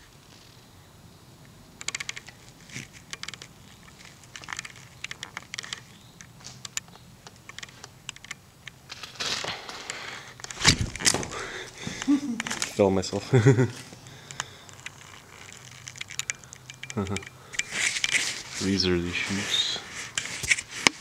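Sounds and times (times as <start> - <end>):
footsteps on broken bricks: 10.5 - 12.8.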